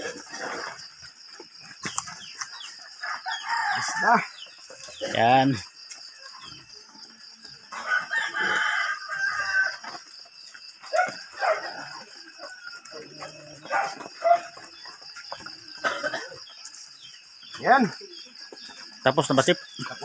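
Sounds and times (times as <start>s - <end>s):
rooster crowing: 2.6s - 4.6s, 7.7s - 10.1s.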